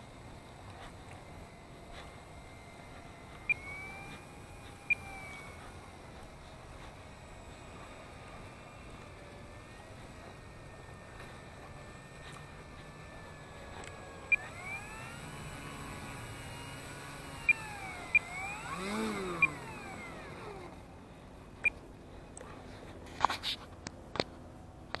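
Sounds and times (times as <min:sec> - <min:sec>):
small electric motor whining: 0:00.0 - 0:21.8
clicks: 0:00.1 - 0:10.4, 0:11.1 - 0:20.8.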